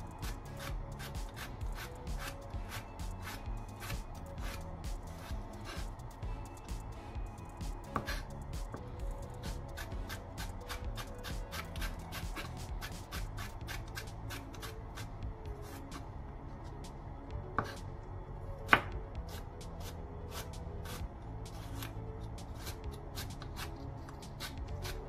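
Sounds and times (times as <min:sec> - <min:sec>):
knife chopping carrot on board: 0:07.9 - 0:08.2, 0:09.7 - 0:15.8, 0:17.6 - 0:17.8, 0:18.7 - 0:19.4.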